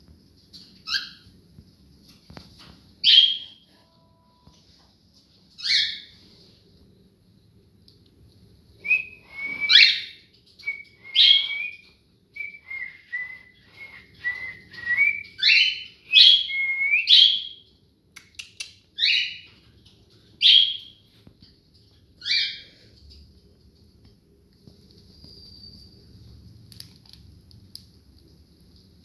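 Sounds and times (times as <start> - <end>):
cockatiel whistling: 8.8 - 17.6.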